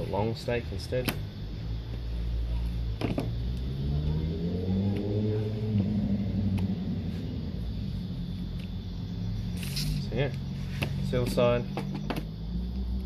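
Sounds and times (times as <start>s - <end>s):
low rumble: 1.3s - 11.3s
vehicle engine accelerating: 1.4s - 13.0s.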